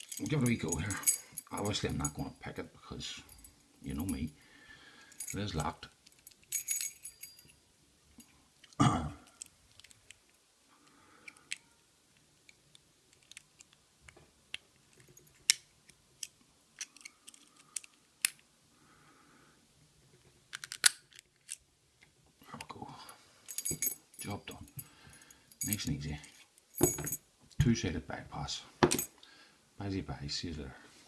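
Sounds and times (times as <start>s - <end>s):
handling thump: 26.8s - 27.2s, 28.8s - 29.1s.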